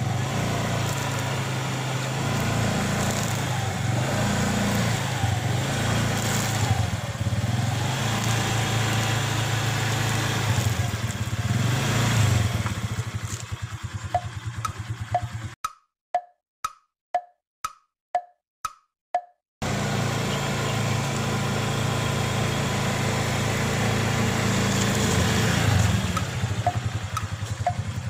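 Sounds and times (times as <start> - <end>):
wheel rolling over sticks: 0.0 - 3.7, 6.0 - 6.9, 12.7 - 14.2
scooter engine puttering: 0.0 - 15.6, 19.6 - 28.0.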